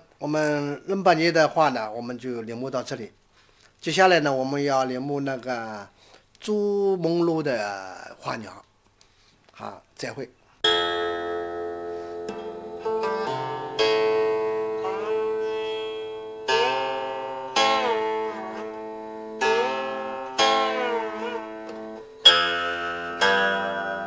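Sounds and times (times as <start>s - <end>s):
plucked string instrument: 10.7s - 24.0s.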